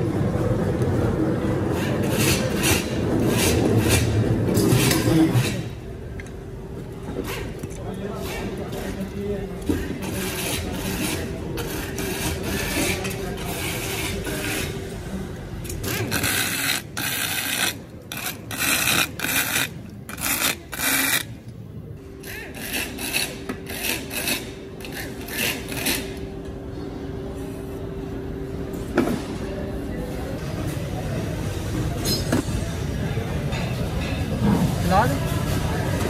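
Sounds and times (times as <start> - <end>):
steady machine hum: 0.0 - 34.0
parts rubbing and scraping: 1.6 - 5.8, 7.1 - 21.4, 22.1 - 26.3.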